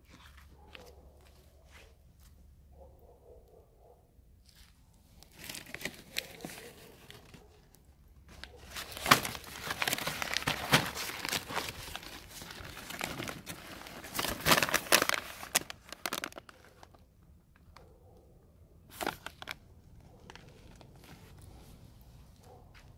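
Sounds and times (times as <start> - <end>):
paper bag crinkling: 4.5 - 7.6, 8.3 - 17.0, 18.9 - 19.6.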